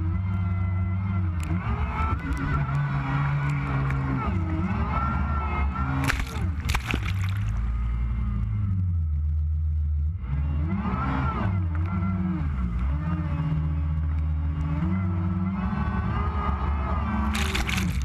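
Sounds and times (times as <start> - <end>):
water spray splashing: 6.0 - 7.6, 17.3 - 18.0.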